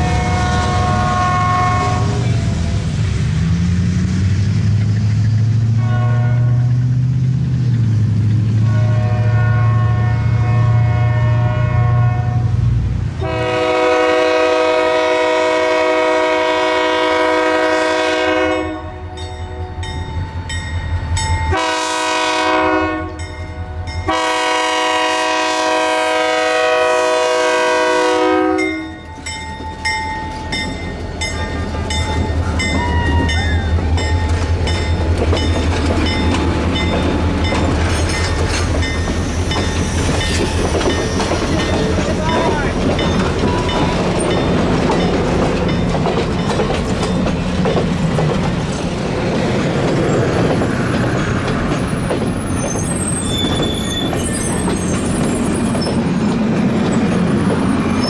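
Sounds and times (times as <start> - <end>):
train air horn blasts: 0.0 - 2.6, 5.7 - 6.8, 8.6 - 12.6, 13.2 - 19.8, 21.5 - 29.1
train rumbling past: 0.0 - 58.0
wheels clacking over rail joints: 28.6 - 58.0.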